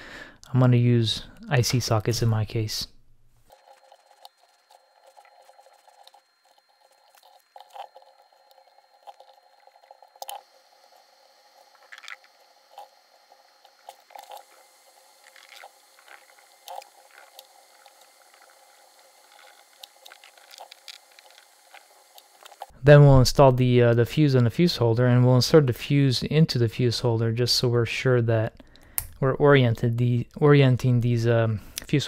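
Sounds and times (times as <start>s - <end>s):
solder sizzling: 1.0s - 22.8s
small clicks and crackles: 11.6s - 13.0s, 13.6s - 22.7s.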